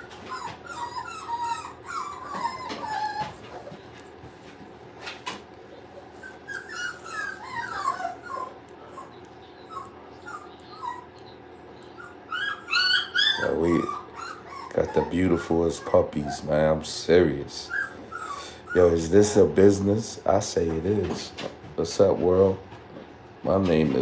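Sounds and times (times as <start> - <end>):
puppy whimpering: 0.0 - 4.6, 5.9 - 19.8.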